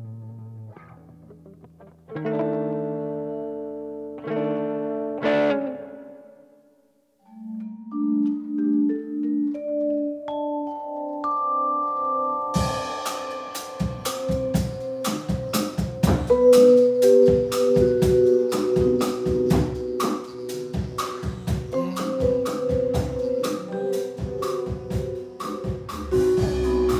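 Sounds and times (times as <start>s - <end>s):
vibraphone notes: 7.3s - 26.9s
drum kit beat: 12.6s - 26.9s.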